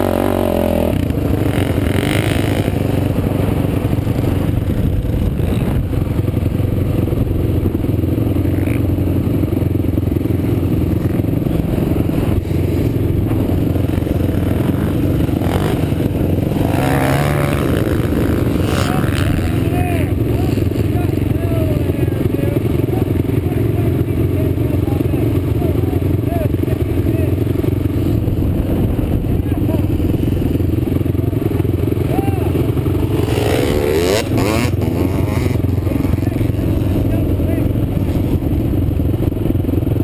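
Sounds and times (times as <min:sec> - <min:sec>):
quad bike engine under throttle: 0:00.0 - 0:40.0
wind noise on microphone: 0:03.4 - 0:08.1, 0:27.5 - 0:30.9.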